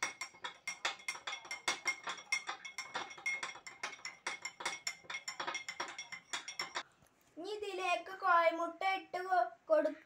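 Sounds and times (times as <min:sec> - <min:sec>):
spoon clinking against glass: 0:00.0 - 0:06.8.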